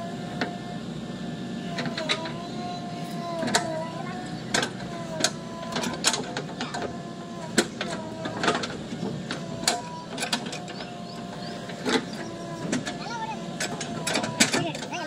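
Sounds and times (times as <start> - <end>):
backhoe loader whine and rumble: 0.0 - 15.0
metallic clanks and knocks: 4.5 - 15.0.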